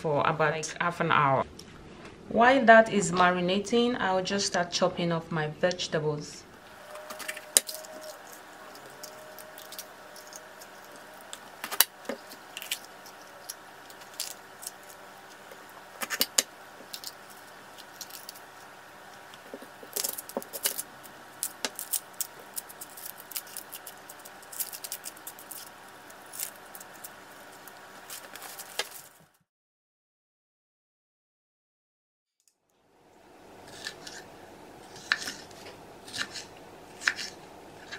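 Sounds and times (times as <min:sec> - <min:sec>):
onion skin peeling: 0:06.6 - 0:29.3, 0:33.6 - 0:37.9
rustling of peppers by hand: 0:06.6 - 0:29.4
knife cutting peppers: 0:06.7 - 0:29.2, 0:33.6 - 0:37.9.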